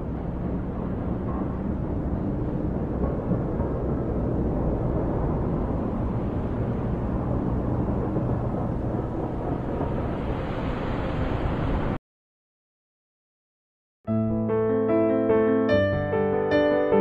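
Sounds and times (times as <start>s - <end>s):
low street rumble: 0.0s - 12.0s.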